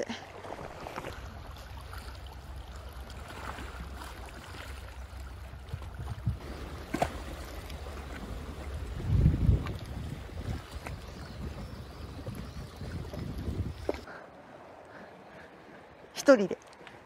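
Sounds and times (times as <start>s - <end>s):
sea water washing on rocks: 0.3s - 11.6s
wind rumble on microphone: 5.4s - 14.1s.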